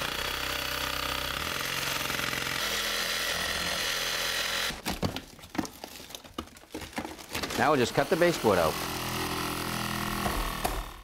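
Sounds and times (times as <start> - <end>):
power saw cutting plaster wall: 0.0 - 4.8, 7.2 - 11.0
knocks of wall pieces: 9.8 - 11.0.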